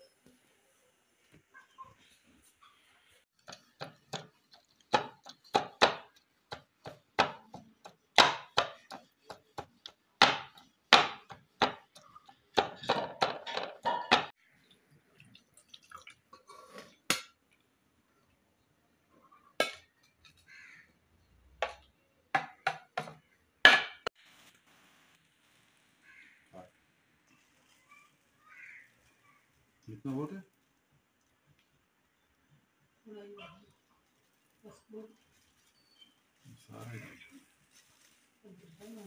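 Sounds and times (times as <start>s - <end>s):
pestle knocking on ceramic plate: 4.9s - 14.3s, 22.4s - 24.1s.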